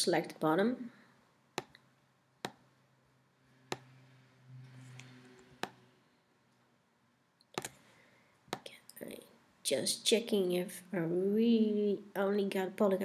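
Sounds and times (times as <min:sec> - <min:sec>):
computer mouse clicks: 0:01.6 - 0:01.8, 0:03.7 - 0:03.9.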